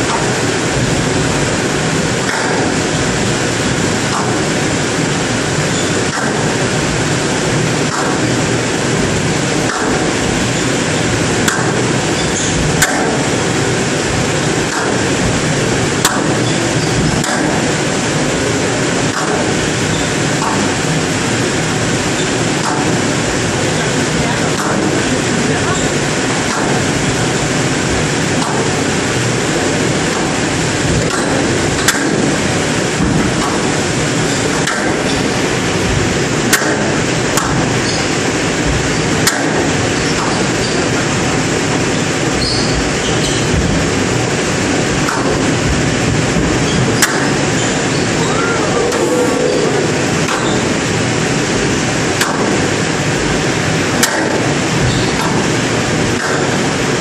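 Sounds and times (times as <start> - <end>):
steady hall noise: 0.0 - 57.0
squash ball hitting racket and wall: 31.0 - 32.4.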